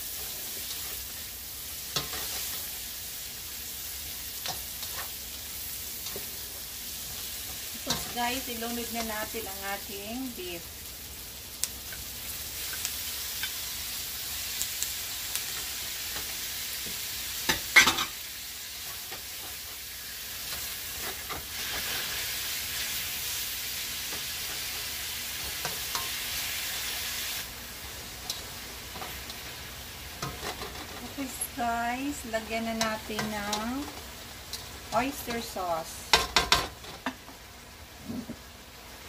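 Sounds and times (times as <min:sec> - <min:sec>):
beef sizzling in hot oil: 0:00.0 - 0:39.0
spatula scraping and clicking on pan: 0:01.9 - 0:02.7, 0:30.2 - 0:31.1.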